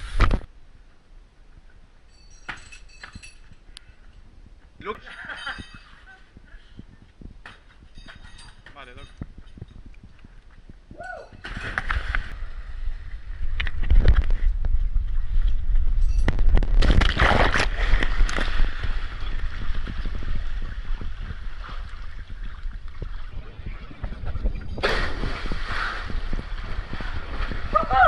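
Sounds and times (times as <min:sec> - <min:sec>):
microphone handling noise: 0:00.0 - 0:00.5, 0:05.6 - 0:28.0
wind rumble on microphone: 0:02.9 - 0:28.0
water sloshing and splashing: 0:16.8 - 0:27.8.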